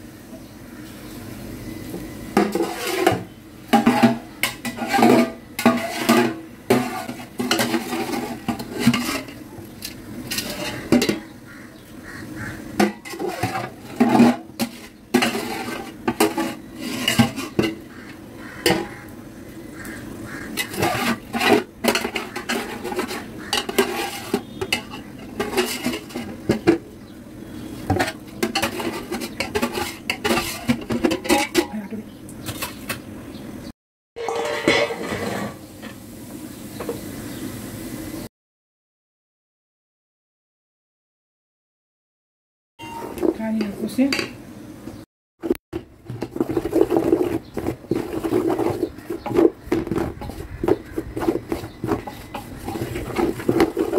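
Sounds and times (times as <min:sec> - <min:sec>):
skimmer scraping a metal pot: 0:02.4 - 0:11.4, 0:12.4 - 0:19.1, 0:19.8 - 0:26.9, 0:27.5 - 0:32.9, 0:34.2 - 0:36.0, 0:42.8 - 0:44.4, 0:45.4 - 0:53.9.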